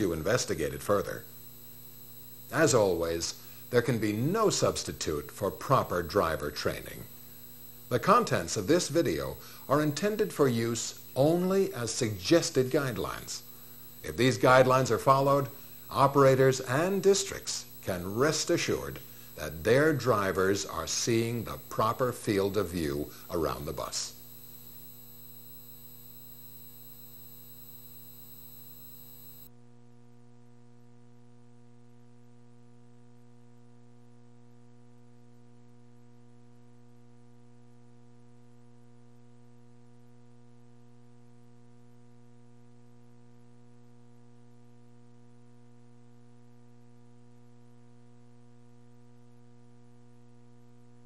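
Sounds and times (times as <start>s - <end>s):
electrical mains hum: 0.0s - 29.5s
faint hiss: 0.0s - 29.5s.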